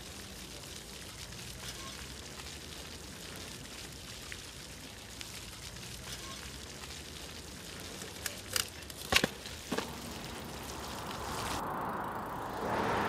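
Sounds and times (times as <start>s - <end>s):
fountain water splashing: 0.0s - 13.0s
vehicle approaching: 9.7s - 13.0s.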